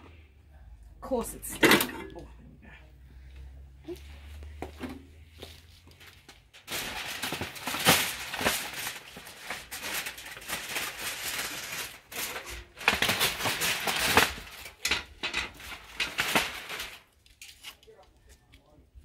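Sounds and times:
aluminium foil crinkling: 5.8s - 18.8s.

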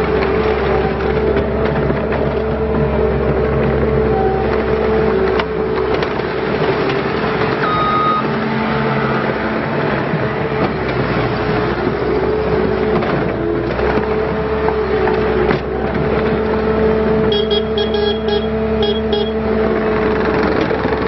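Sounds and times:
tracks clicking and clattering: 0.0s - 8.4s, 9.3s - 21.0s
diesel engine running with whine: 0.0s - 21.0s
brief high tone: 7.6s - 8.3s, 17.3s - 19.4s.

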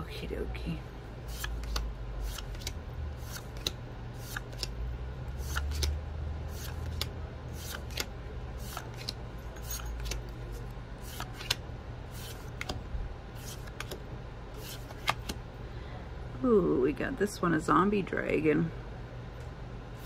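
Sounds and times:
steady low hum: 0.0s - 20.0s
cards being flipped: 1.3s - 4.8s, 5.4s - 10.4s, 11.0s - 12.8s, 13.4s - 14.0s, 14.6s - 15.4s.

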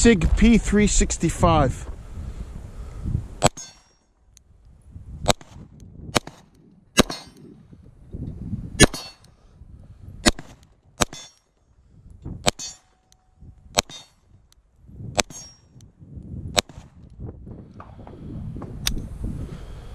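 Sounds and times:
wind rumbling on microphone: 0.0s - 3.5s, 4.4s - 11.0s, 11.7s - 12.6s, 13.3s - 19.9s
pistol shots: 5.2s - 7.5s, 8.8s - 9.3s, 10.2s - 11.4s.

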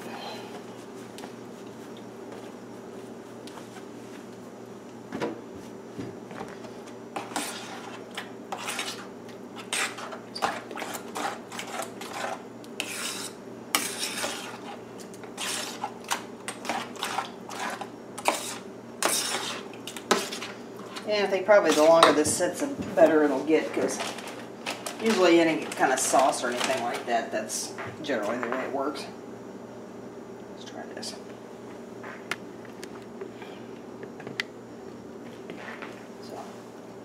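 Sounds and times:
steady low hum: 0.0s - 37.0s
metal spoon scraping a metal bowl: 7.2s - 14.8s, 15.4s - 15.9s, 16.6s - 22.1s.

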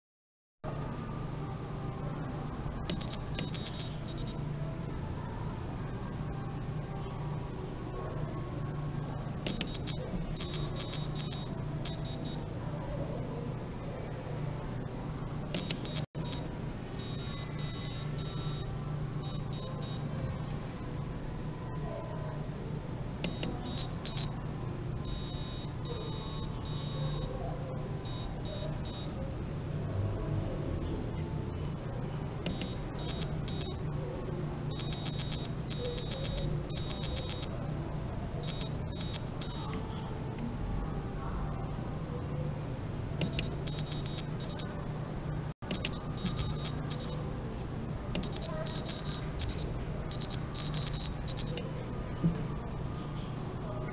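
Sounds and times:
piezo buzzer beeping: 2.9s - 4.5s, 9.5s - 12.5s, 15.6s - 20.1s, 23.2s - 24.4s, 25.0s - 27.3s, 28.0s - 29.2s, 32.5s - 33.9s, 34.7s - 37.5s, 38.4s - 39.8s, 43.2s - 44.8s, 45.7s - 47.3s, 48.2s - 51.7s.

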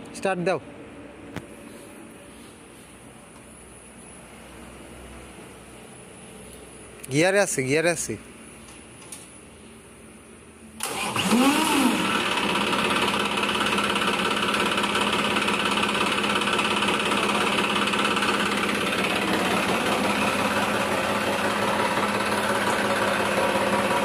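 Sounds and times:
tractor diesel engine starting: 10.7s - 24.0s.

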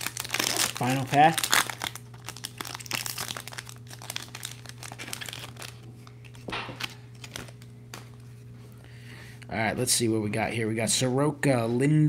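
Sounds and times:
foil wrapper tearing and crinkling: 0.0s - 8.0s.

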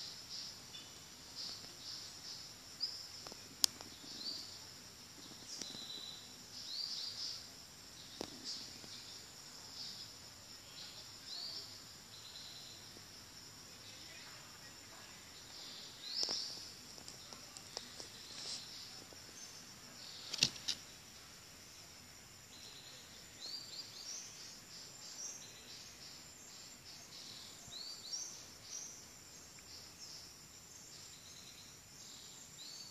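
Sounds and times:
high insect drone: 0.0s - 32.9s
sharp clicks: 20.2s - 20.8s.

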